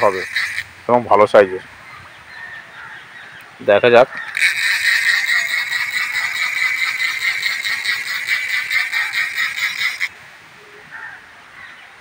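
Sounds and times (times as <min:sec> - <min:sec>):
fishing reel ratchet clicking: 0:00.0 - 0:00.6, 0:04.2 - 0:10.1.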